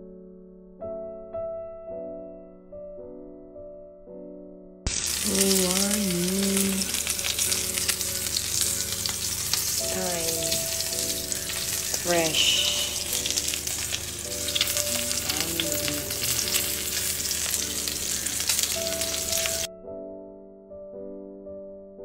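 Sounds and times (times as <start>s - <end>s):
steak sizzling in a pan: 4.9s - 19.7s.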